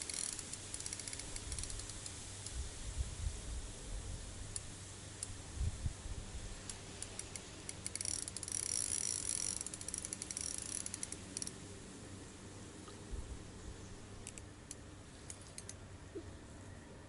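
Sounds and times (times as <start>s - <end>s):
fishing reel clicking and whirring: 0.0s - 2.5s, 6.6s - 11.6s, 14.2s - 15.8s.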